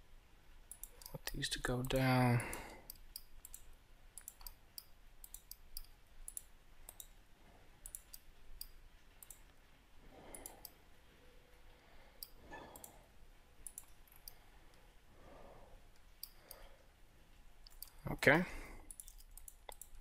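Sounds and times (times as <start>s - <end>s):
mouse and keyboard clicks: 13.6s - 14.4s, 18.9s - 20.0s.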